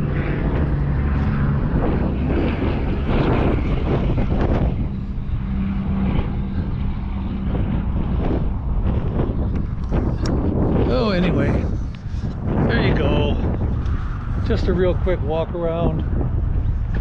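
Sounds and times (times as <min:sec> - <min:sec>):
low motor drone: 0:00.0 - 0:17.0.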